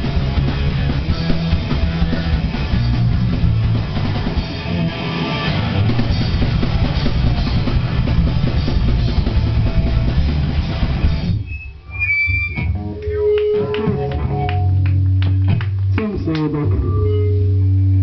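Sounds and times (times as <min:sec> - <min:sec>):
bass guitar: 0:00.0 - 0:18.0
distorted electric guitar: 0:00.0 - 0:18.0
drum kit: 0:00.0 - 0:18.0
high squeal: 0:11.4 - 0:14.7.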